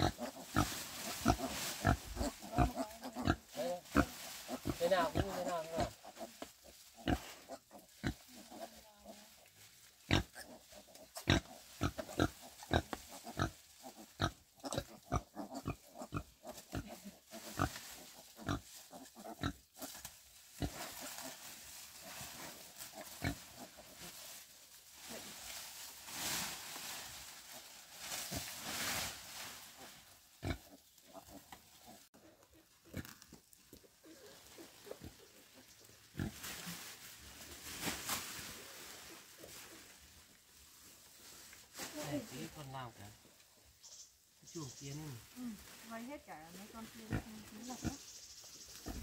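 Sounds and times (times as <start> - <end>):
pigs grunting: 0.0 - 6.4, 7.0 - 9.2, 10.1 - 19.9
rustling: 0.0 - 49.0.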